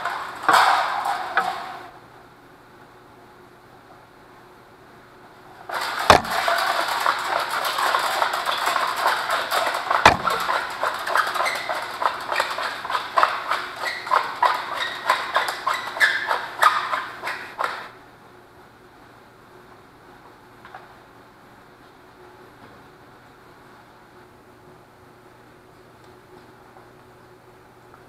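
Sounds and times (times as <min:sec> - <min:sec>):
fish tape rattling scrape: 0:05.7 - 0:17.9
sharp knocks: 0:05.7 - 0:17.9.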